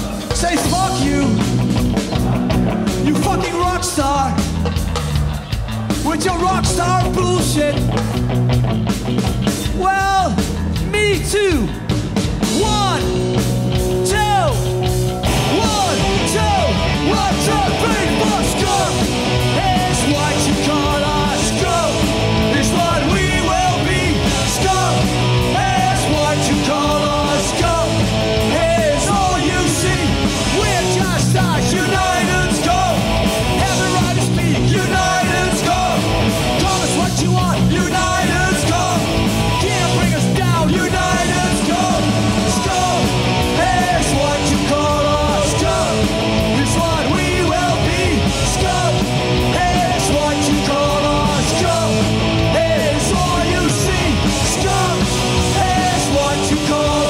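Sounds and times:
drums and cymbals: 0.0s - 57.0s
punk rock band playing live: 0.0s - 57.0s.

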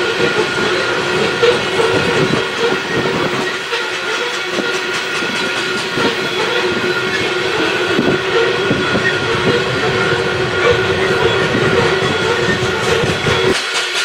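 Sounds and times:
train wheels clattering: 0.0s - 14.0s
steady ringing tone: 5.4s - 13.5s.

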